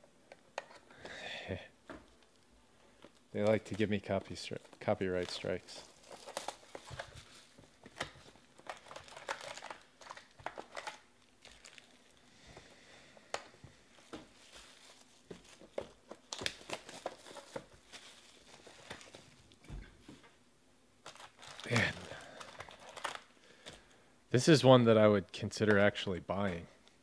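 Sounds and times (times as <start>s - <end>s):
plastic wrapping crinkling: 2.1s - 12.3s, 13.3s - 19.6s, 21.0s - 23.8s.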